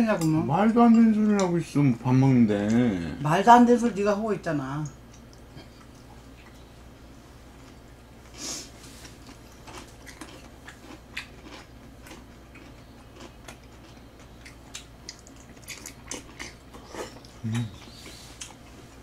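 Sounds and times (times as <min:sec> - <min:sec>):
wet chewing and mouth smacks: 0:09.0 - 0:18.8.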